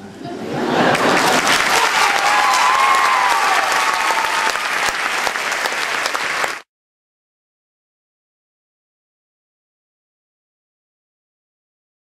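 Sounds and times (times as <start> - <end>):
audience applauding: 0.9 - 6.7.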